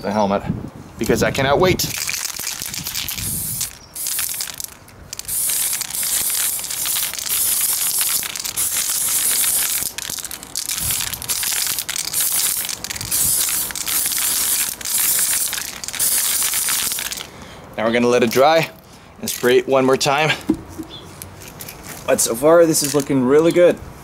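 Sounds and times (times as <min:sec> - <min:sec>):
spray paint can hissing: 0:01.8 - 0:17.3.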